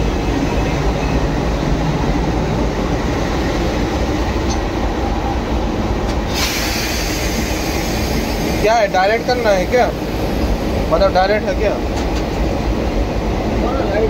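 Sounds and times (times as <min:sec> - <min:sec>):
diesel locomotive engine running: 0:00.0 - 0:14.0
loud hiss: 0:06.2 - 0:10.9.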